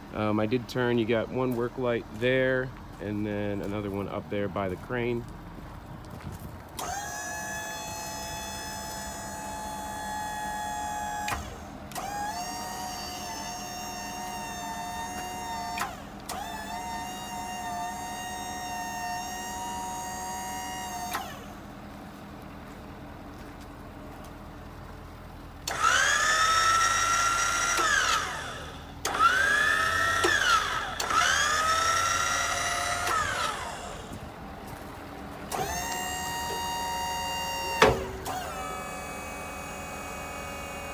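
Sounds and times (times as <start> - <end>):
hydraulic pump whining: 6.7 - 22.0, 25.3 - 40.9.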